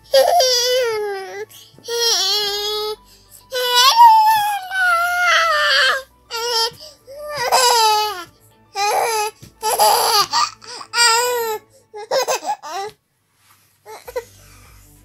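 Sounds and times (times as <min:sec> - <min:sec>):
baby laughing: 0:03.5 - 0:13.0.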